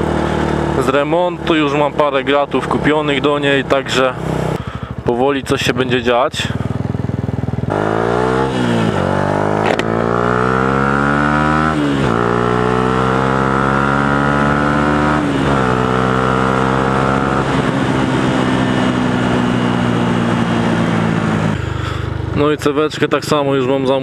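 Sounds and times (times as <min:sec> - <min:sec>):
motorcycle engine accelerating: 0:00.0 - 0:24.0
sharp knock: 0:09.6 - 0:09.9.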